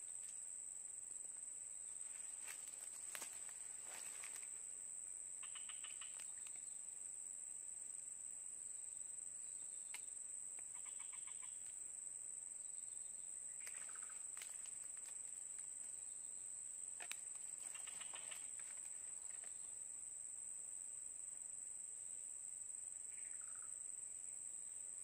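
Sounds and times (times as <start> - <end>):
high-pitched insect drone: 5.4 - 6.8, 12.7 - 15.2, 17.5 - 19.7.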